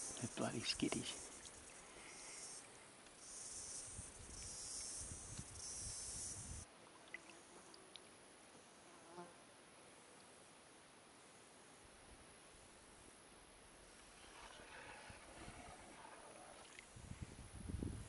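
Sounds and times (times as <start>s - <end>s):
high-pitched insect buzzing: 0.0s - 6.6s.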